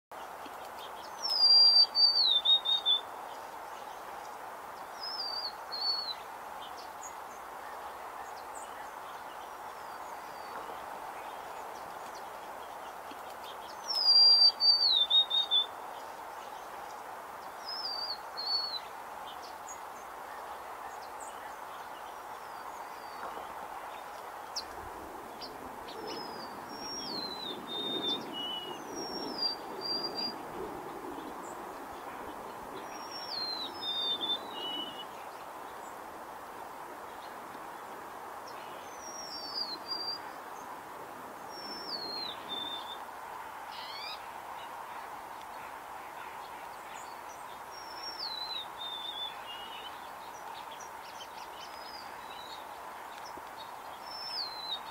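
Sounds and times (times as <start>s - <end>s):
songbird singing whistled notes: 0.7s - 3.4s, 4.9s - 11.4s, 13.4s - 15.8s, 17.6s - 18.9s, 25.4s - 30.4s, 32.8s - 35.3s, 38.5s - 40.4s, 41.5s - 43.0s, 46.9s - 54.9s.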